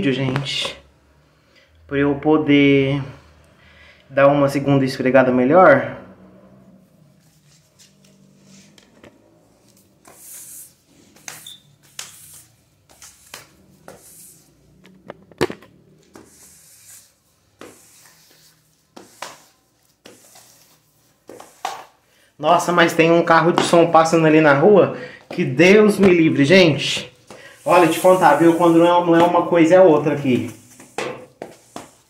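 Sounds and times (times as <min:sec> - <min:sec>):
squeegee swishing water on tiles: 0:09.7 - 0:14.5, 0:16.1 - 0:22.0.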